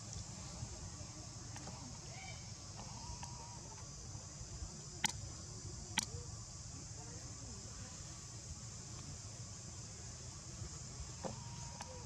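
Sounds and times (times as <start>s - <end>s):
insect chirring: 0.0s - 12.0s
sharp clicks: 5.0s - 5.2s.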